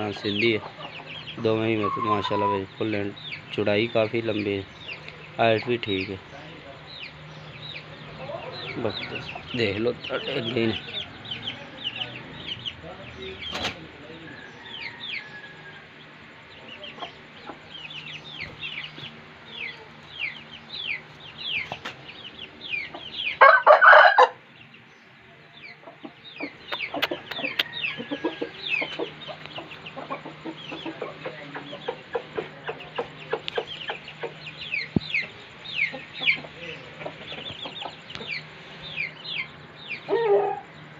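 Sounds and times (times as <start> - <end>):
rooster call: 1.8 - 2.7, 23.4 - 24.4.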